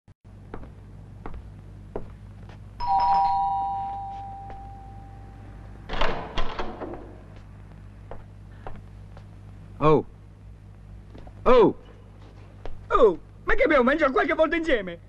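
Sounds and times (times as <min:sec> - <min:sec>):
two-note doorbell chime: 0:02.8 - 0:05.4
knocks and rattles at door: 0:05.9 - 0:07.2.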